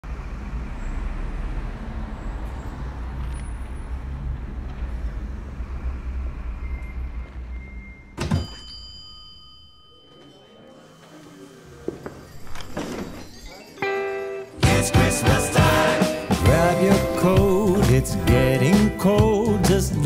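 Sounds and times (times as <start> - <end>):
bus engine rumbling: 0.0 - 8.2
door bell ringing: 6.8 - 11.0.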